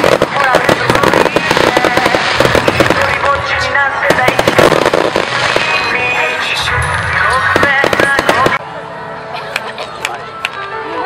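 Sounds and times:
rapid crackling pops: 0.0s - 3.4s, 4.1s - 5.9s, 7.5s - 8.6s
fireworks bursting: 0.0s - 8.6s.

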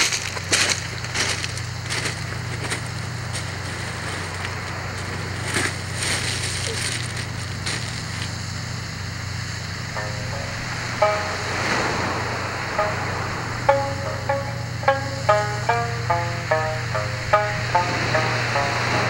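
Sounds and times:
steady low hum: 0.1s - 19.0s
plucked string notes: 9.8s - 19.0s.

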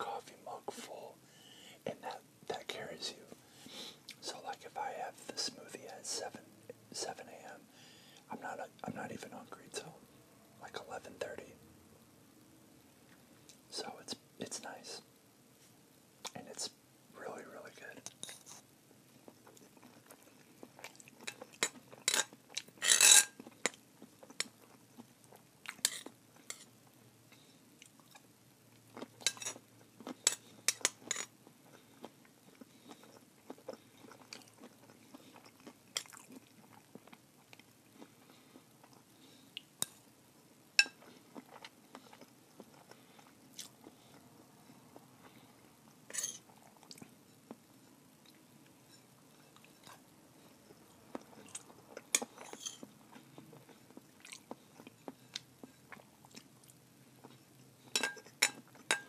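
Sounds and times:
close chewing: 28.9s - 39.7s.

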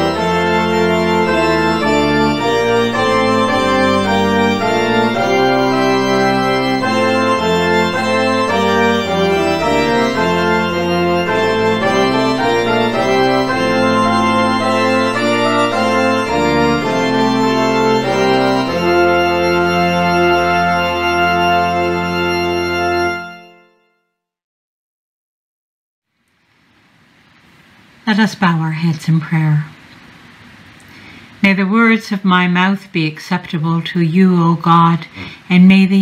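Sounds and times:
organ playing a hymn: 0.0s - 23.9s.

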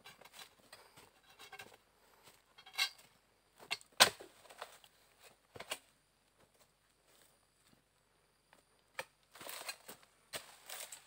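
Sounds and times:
footsteps through dry palm litter: 9.3s - 11.0s.

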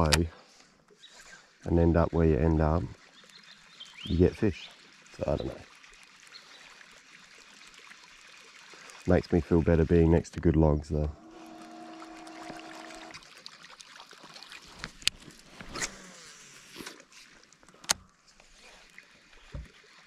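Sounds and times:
fishing gear clicks and knocks: 0.0s - 0.3s
steady hum: 10.9s - 13.2s.

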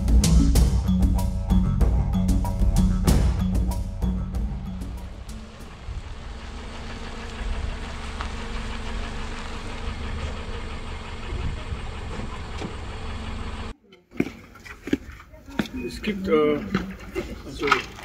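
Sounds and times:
vehicle engine droning: 0.0s - 13.8s.

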